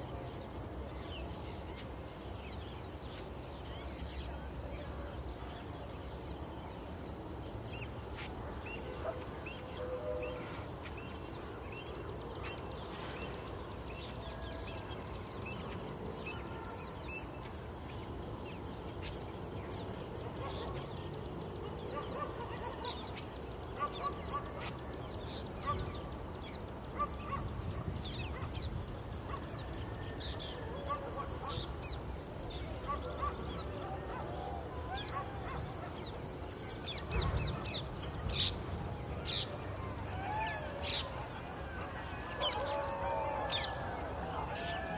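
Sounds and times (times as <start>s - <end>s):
insects trilling: 0.0s - 44.9s
steady low background noise: 0.0s - 44.9s.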